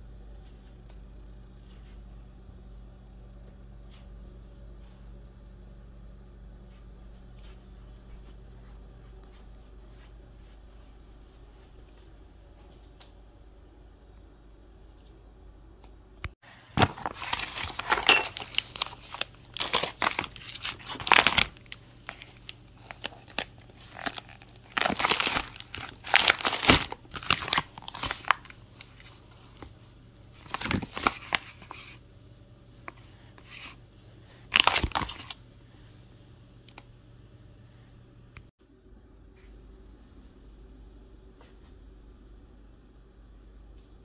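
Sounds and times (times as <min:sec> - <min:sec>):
plastic packaging crinkling: 0:16.6 - 0:29.7, 0:30.3 - 0:31.9, 0:34.5 - 0:35.4.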